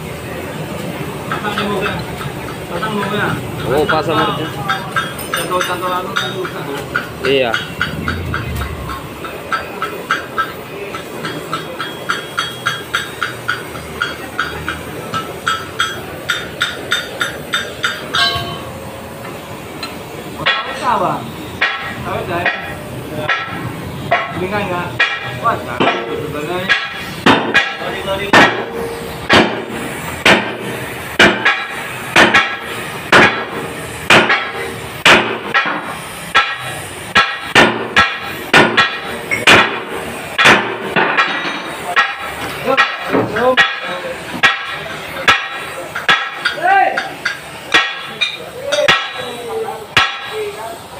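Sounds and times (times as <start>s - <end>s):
ringing metal clang: 4.7s - 10.6s, 15.4s - 18.8s
hammer striking metal: 4.7s - 18.7s, 21.6s - 50.6s.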